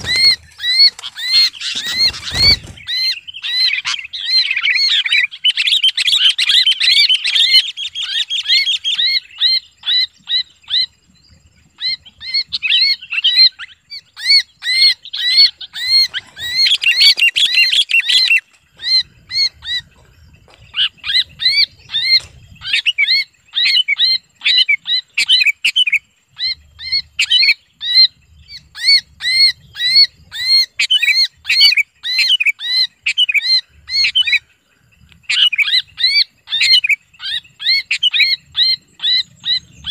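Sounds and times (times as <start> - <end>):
bird distress screams: 0.0 - 5.4.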